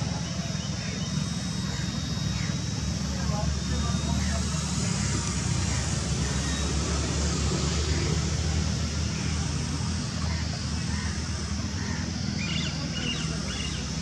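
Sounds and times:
rc helicopter buzzing: 0.0s - 14.0s.

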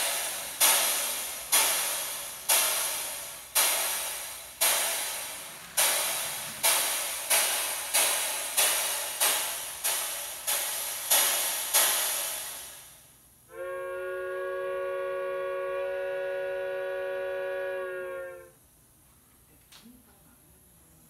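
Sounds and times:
steam locomotive exhaust chuffs: 0.0s - 18.6s
multi-tone steam whistle: 13.5s - 18.6s.

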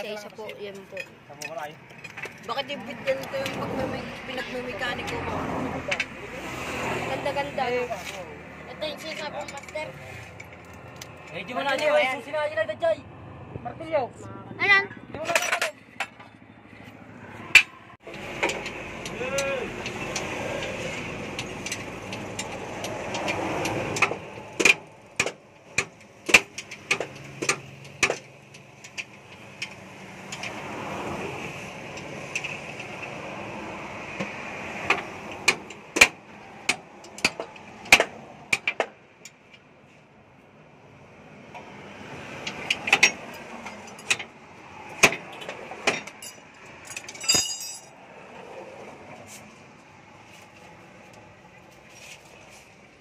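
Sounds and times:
hand tools tapping on metal: 0.0s - 3.6s, 8.9s - 11.9s, 17.5s - 30.6s, 34.1s - 39.7s, 42.4s - 47.9s
tools clinking on steel spring: 45.4s - 47.9s
metallic rattle and ring: 46.0s - 47.9s.

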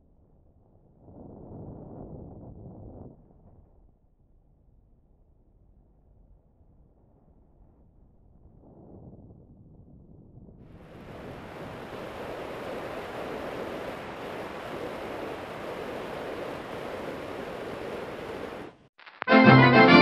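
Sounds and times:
wind buffeting microphone: 8.4s - 18.8s.

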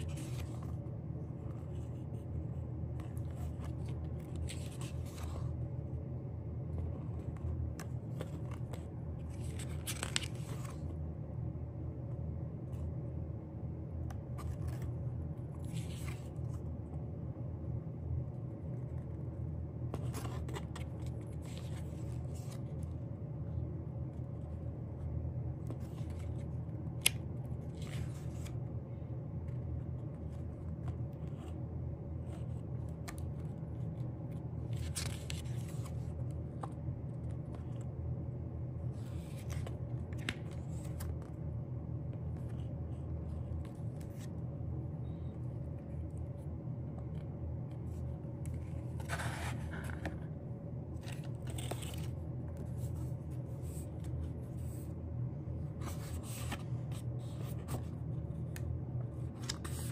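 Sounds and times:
paper rustling and scraping: 0.0s - 5.6s, 6.7s - 11.0s, 14.2s - 16.7s, 19.9s - 23.0s, 25.6s - 28.7s, 32.2s - 37.9s, 38.8s - 41.4s, 47.7s - 55.0s, 55.6s - 59.9s
steady low hum: 0.0s - 59.9s.

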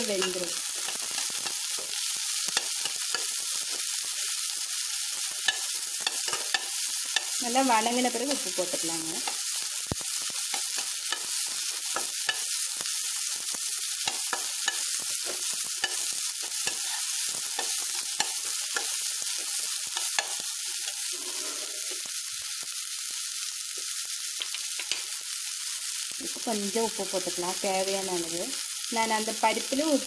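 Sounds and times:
beans sizzling in oil: 0.0s - 30.0s
metal spatula scraping a pan: 20.1s - 22.1s.

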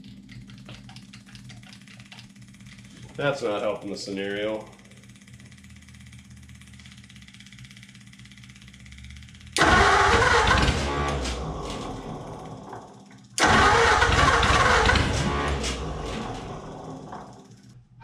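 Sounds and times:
engine cranking on starter: 8.1s - 17.8s.

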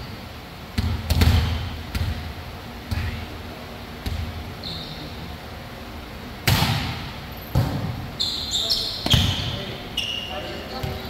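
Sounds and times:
volleyball bouncing on gym floor: 0.7s - 3.2s, 4.0s - 4.4s, 6.4s - 8.0s, 9.0s - 9.6s, 10.8s - 11.0s
sneaker squeak on court: 4.6s - 5.2s, 7.6s - 11.0s.

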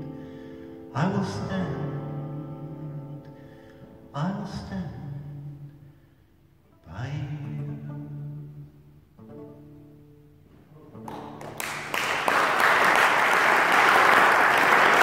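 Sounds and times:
acoustic guitar chords ringing: 0.0s - 11.1s
audience applause: 11.1s - 15.0s.

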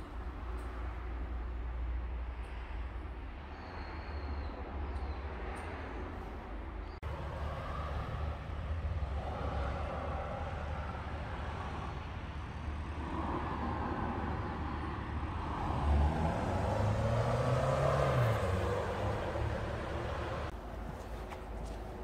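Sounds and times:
outdoor background noise: 0.0s - 22.0s
vehicle engine passing: 15.3s - 20.6s.

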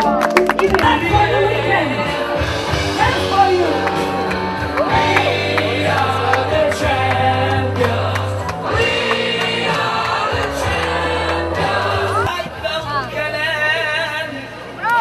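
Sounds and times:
bass line: 0.0s - 14.8s
voices singing together: 4.0s - 14.4s.

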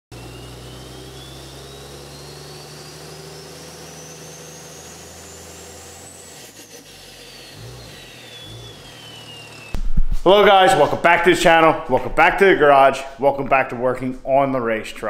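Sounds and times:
high rising whine: 0.1s - 10.6s.

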